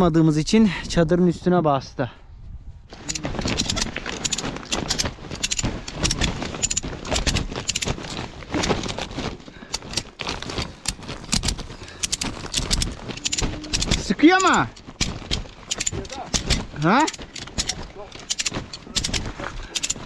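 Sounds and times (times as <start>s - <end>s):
plastic tarp crackling: 2.9s - 20.0s
sharp clicks: 9.7s - 20.0s.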